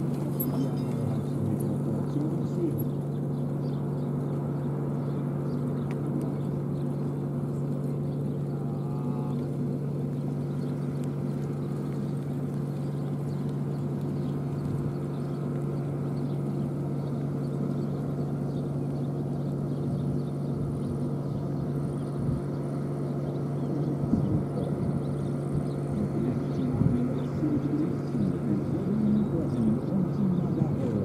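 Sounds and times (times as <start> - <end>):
low mechanical hum: 0.0 - 31.0
hoofbeats of trotting horses: 9.3 - 19.6.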